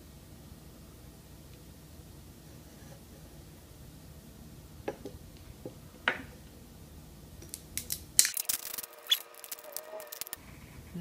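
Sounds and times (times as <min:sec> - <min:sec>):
label peeling off with crackling: 0:07.4 - 0:10.4.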